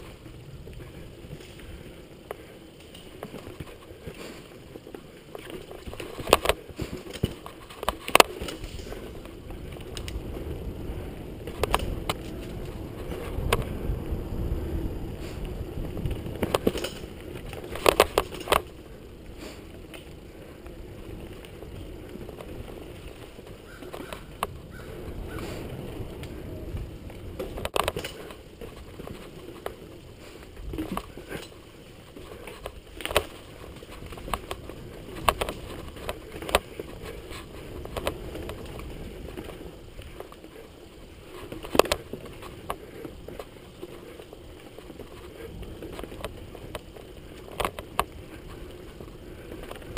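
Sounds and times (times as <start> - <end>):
bike rattling and knocking: 0.0 - 49.9
bike tyres rumbling on dirt: 0.0 - 49.9
wind: 0.0 - 49.9.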